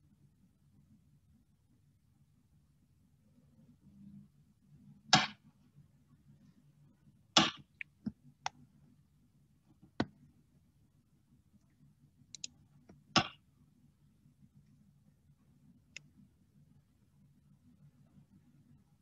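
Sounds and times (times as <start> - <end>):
faint low hum: 0.0 - 19.0
mouse and keyboard clicks: 12.3 - 12.6.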